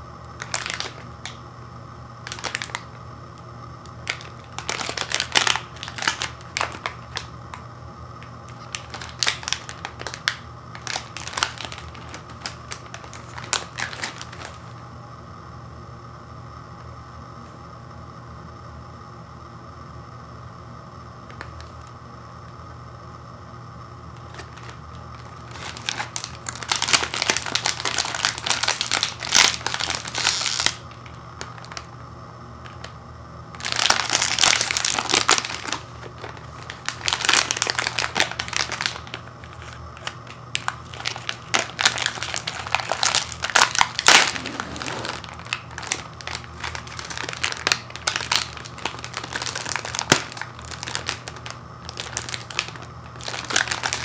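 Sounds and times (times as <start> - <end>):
plastic wrapper crinkling: 0.4 - 1.4, 2.2 - 3.0, 3.8 - 7.6, 8.2 - 14.7, 24.2 - 31.9, 33.5 - 54.0.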